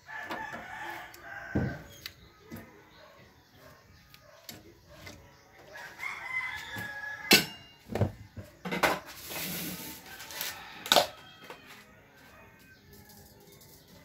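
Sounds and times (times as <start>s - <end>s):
rooster crowing: 0.0s - 2.0s, 5.7s - 7.8s, 10.0s - 13.1s.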